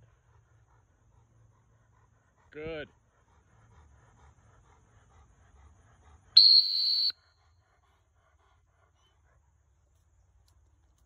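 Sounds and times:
training whistle blast: 6.4 - 7.2.

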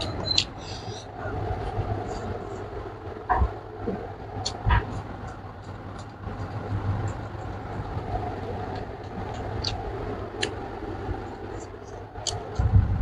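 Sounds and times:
low background hum: 0.0 - 13.0
person chewing food: 8.8 - 9.8.

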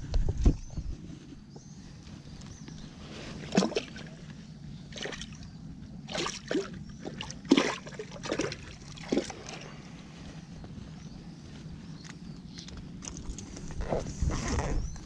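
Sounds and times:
fish splashing at water surface: 6.1 - 9.7.

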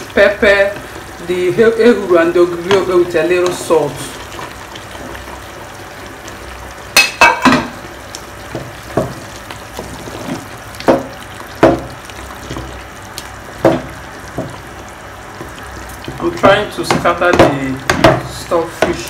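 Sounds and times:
stew simmering with a hiss: 0.0 - 19.0
spoon knocking against a pot: 10.8 - 11.9, 16.9 - 19.0.

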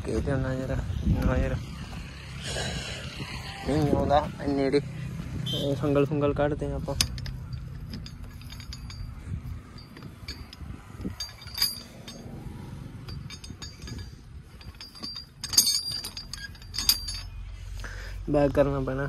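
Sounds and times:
iron chain clinking and rattling: 5.5 - 17.8.

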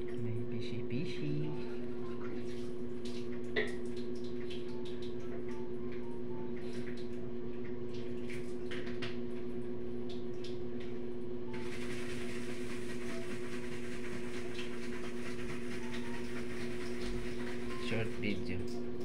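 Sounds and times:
aquarium pump humming: 0.0 - 19.0
water bubbling and dripping: 1.8 - 11.0.

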